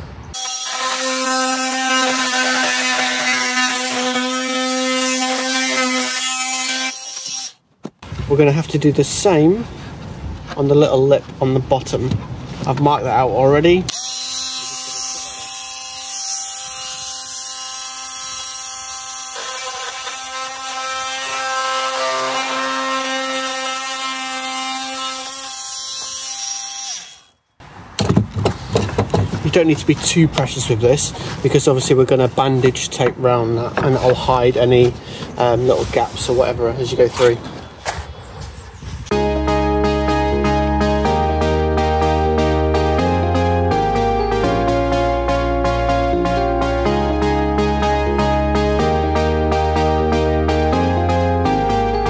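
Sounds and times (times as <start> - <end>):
oscillating multi-tool buzzing: 0.4 - 7.6, 13.9 - 27.4.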